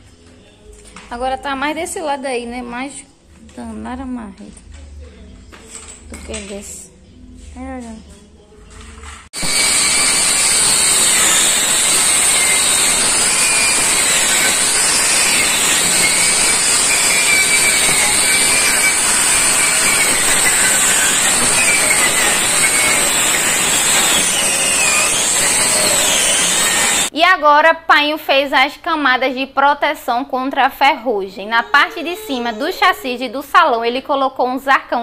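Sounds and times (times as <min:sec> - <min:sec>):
angle grinder grinding steel: 0:09.2 - 0:27.1, 0:31.1 - 0:33.6.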